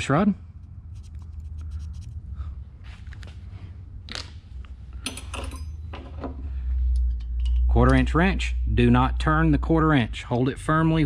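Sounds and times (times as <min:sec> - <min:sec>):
low steady rumble: 0:00.0 - 0:11.0
metal tools clinking and scraping: 0:05.0 - 0:06.2.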